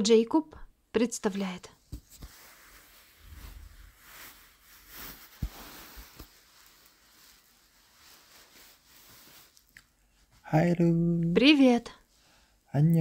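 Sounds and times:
rustling handling noise: 0:01.4 - 0:10.4.

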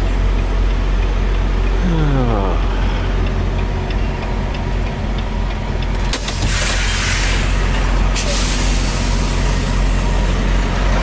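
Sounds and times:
turn signal relay ticking: 0:00.0 - 0:06.4
diesel engine idling: 0:00.0 - 0:11.0
air brake hiss: 0:06.3 - 0:10.2.

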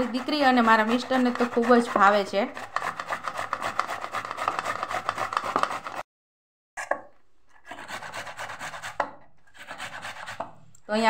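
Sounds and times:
tomato rasping on metal grater: 0:00.0 - 0:06.0.

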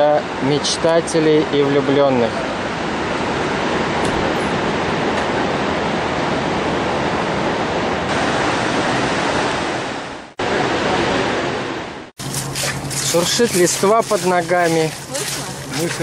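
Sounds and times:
river rapids rushing: 0:08.1 - 0:16.0.

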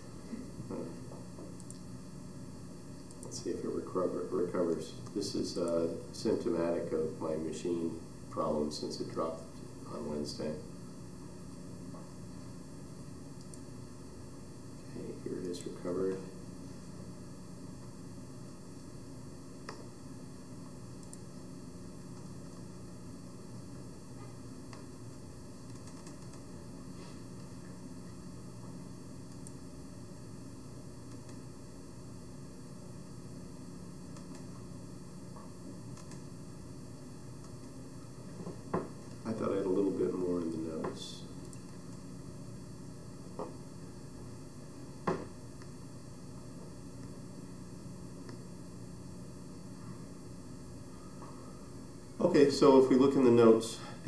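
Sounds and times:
microphone hiss and hum: 0:00.0 - 0:54.0.

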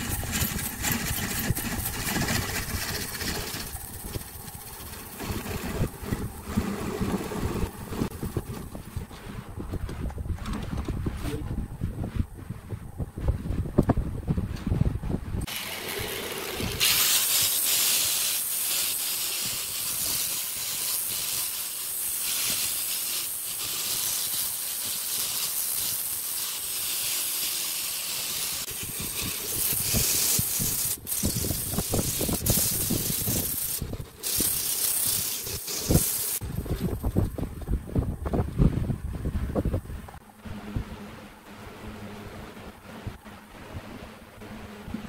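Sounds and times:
wood sanding on a lathe: 0:00.0 - 0:08.8, 0:15.4 - 0:36.4
angle grinder sanding drum: 0:00.0 - 0:09.4, 0:15.4 - 0:37.2
hand sandpaper hiss: 0:15.5 - 0:36.4.

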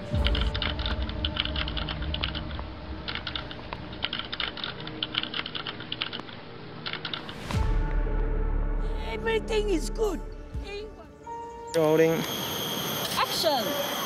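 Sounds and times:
low rumble: 0:00.0 - 0:05.1, 0:07.3 - 0:11.2
computer keyboard typing: 0:00.2 - 0:02.5, 0:03.1 - 0:07.4.

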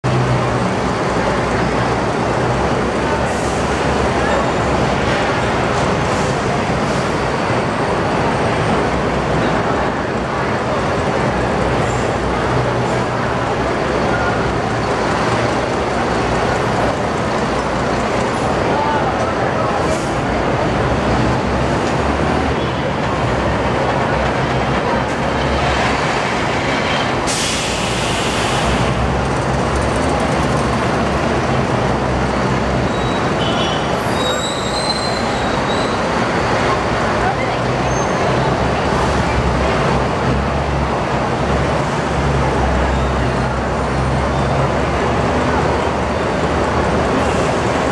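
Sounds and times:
bus engines humming: 0:00.0 - 0:47.9
murmur of crowd: 0:00.0 - 0:47.9
compressed air hiss: 0:27.3 - 0:28.8.

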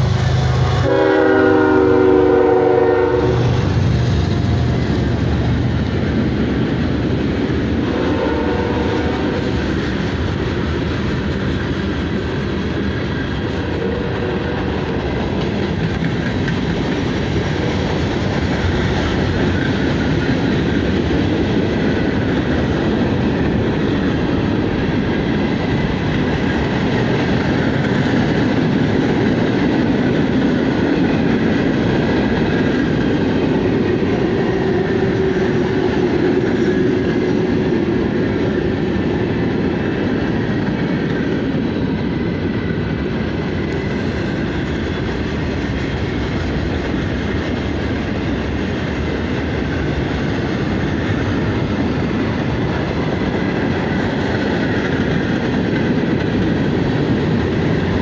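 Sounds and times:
train air horn: 0:00.0 - 0:03.7, 0:07.8 - 0:09.5, 0:13.6 - 0:14.9
freight cars rumbling: 0:00.0 - 0:58.0.

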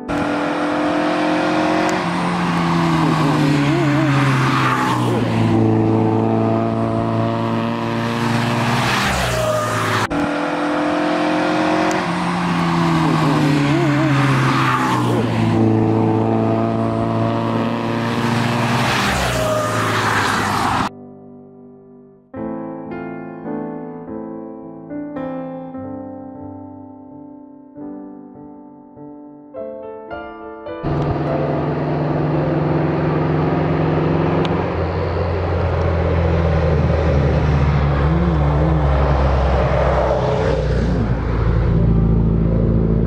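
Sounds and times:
racing cars passing: 0:00.1 - 0:20.9, 0:30.8 - 0:43.0
tire squeal: 0:08.3 - 0:10.8, 0:12.0 - 0:15.4, 0:18.2 - 0:20.9.

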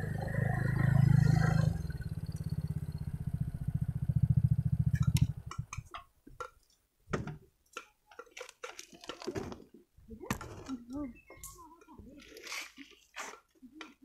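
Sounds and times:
motorcycle engine chugging: 0:00.0 - 0:05.9.

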